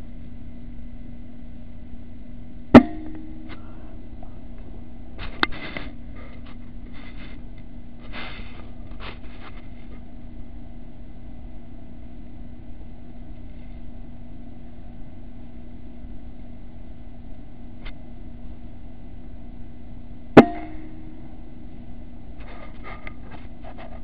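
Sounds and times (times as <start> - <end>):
low hum with high whine: 0.0 - 24.0.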